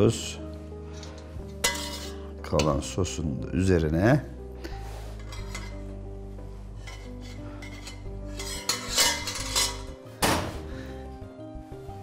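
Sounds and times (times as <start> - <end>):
background music: 0.0 - 12.0
dishes and utensils clattering: 0.9 - 3.0, 5.1 - 6.0, 6.7 - 10.7.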